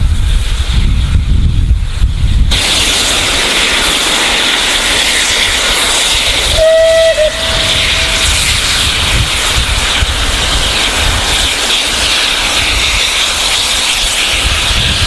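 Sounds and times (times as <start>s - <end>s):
steam locomotive hissing: 0.0s - 15.0s
steam whistle: 6.4s - 8.6s.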